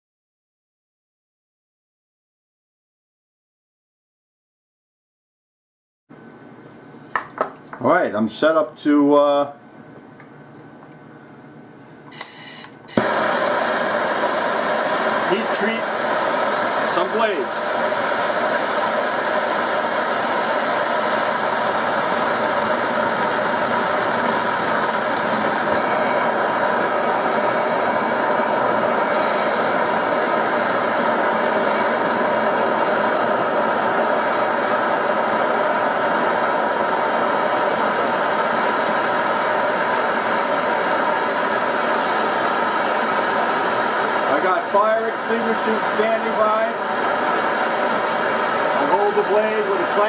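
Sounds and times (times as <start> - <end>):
gas torches hissing: 12.1 - 50.0.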